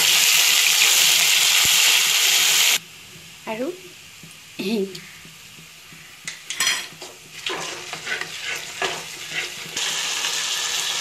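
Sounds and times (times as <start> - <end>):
loud sizzle in hot oil: 0.0 - 11.0
spices frying in oil: 0.0 - 11.0
wooden spatula scraping pan: 6.8 - 9.9.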